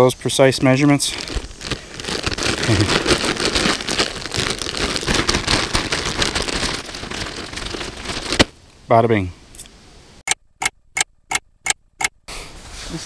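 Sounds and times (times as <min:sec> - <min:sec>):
dense continuous crackling: 0:00.0 - 0:09.0
hands squeezing wet bait: 0:01.1 - 0:08.4.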